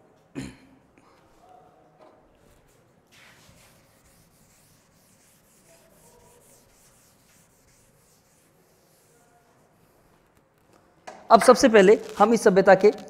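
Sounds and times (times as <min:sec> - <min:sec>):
duster wiping blackboard: 0:02.7 - 0:10.3.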